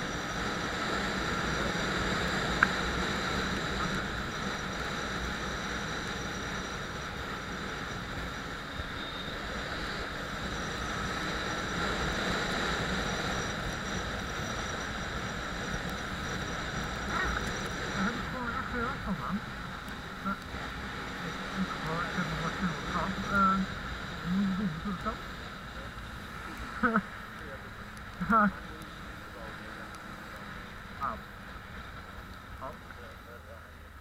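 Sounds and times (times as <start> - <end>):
motorcycle engine running: 0.0 - 34.0
wind and road noise: 0.0 - 34.0.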